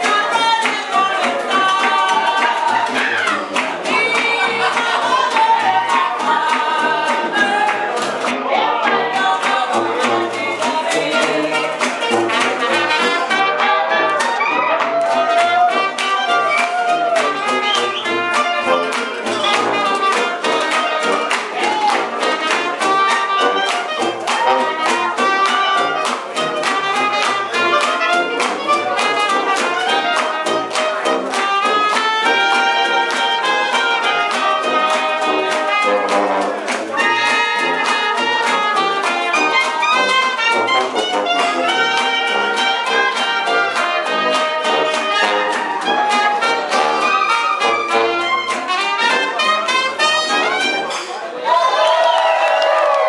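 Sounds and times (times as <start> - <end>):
strummed rhythm: 0.0 - 51.2
trumpet and brass melody: 0.0 - 51.4
sousaphone bass: 1.4 - 22.2.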